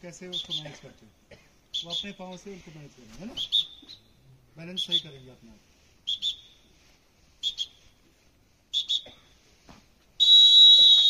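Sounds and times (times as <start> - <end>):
whistle blasts: 0.3 - 0.8, 1.7 - 2.5, 3.3 - 4.2, 4.8 - 5.3, 6.0 - 6.8, 7.4 - 8.0, 8.7 - 9.3, 10.2 - 11.0.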